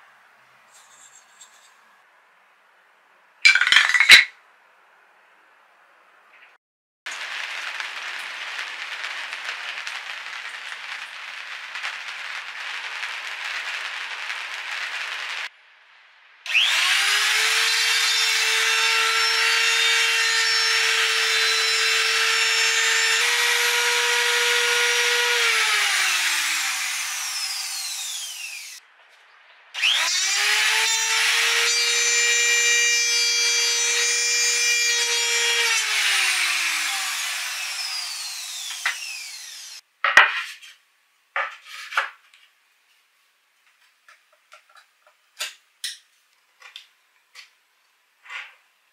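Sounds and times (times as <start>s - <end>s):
router motor whine: 16.5s - 28.8s, 29.8s - 39.8s.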